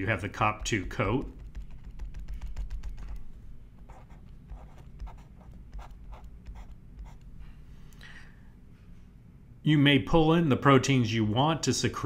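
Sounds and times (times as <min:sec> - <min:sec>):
stylus tapping and scratching tablet: 0:00.0 - 0:07.4
low steady hum: 0:00.0 - 0:12.0.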